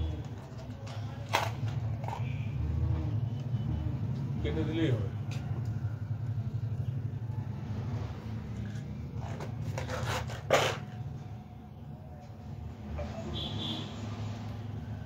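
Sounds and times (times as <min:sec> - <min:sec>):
scrapes and rubs: 0:08.5 - 0:11.0.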